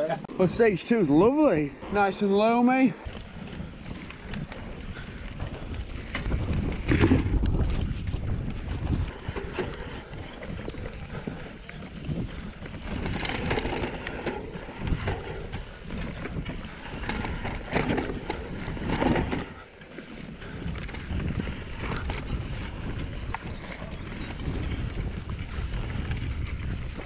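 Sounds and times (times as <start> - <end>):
bike tyres rolling on dirt: 0.0 - 27.0
wind buffeting microphone: 0.0 - 27.0
bike knocking and rattling: 1.2 - 27.0.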